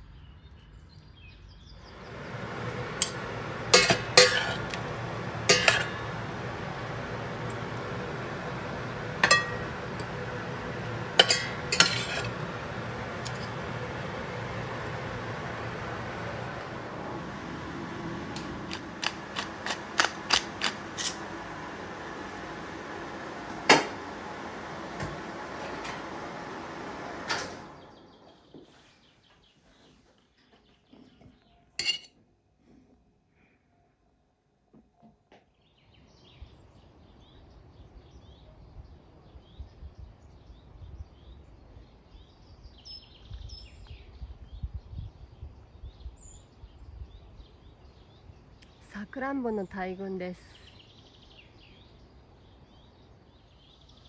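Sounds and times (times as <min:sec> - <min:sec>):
small birds chirping: 0:00.0 - 0:03.7, 0:35.5 - 0:54.0
wind rumble on microphone: 0:38.6 - 0:48.0.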